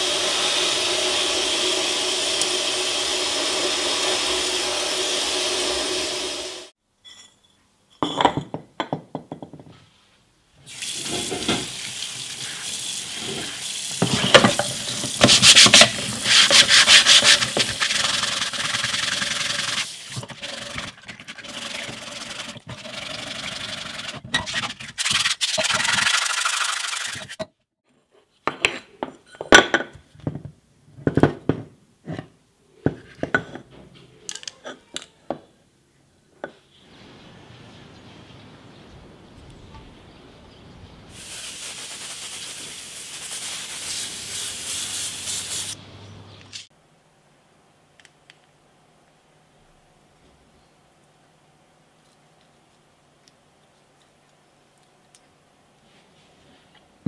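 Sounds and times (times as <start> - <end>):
abrasive pad scrubbing metal: 15.1 - 27.3.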